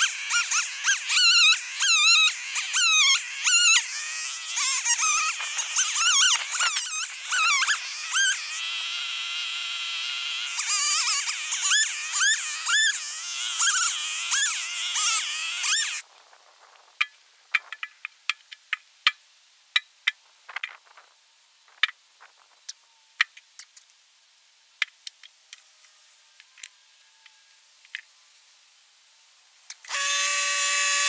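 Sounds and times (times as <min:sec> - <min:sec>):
chainsaw revving: 0:00.0 - 0:16.0.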